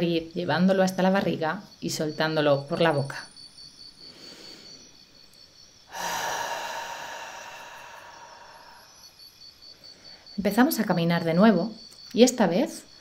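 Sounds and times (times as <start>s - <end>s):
woman inhaling through nose: 4.0s - 4.9s, 5.9s - 9.1s
woman exhaling through mouth: 5.9s - 9.0s.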